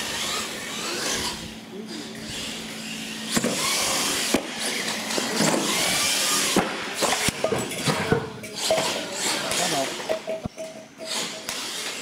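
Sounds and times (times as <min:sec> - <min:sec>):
toy truck motor whine: 0:00.0 - 0:06.6, 0:11.1 - 0:12.0.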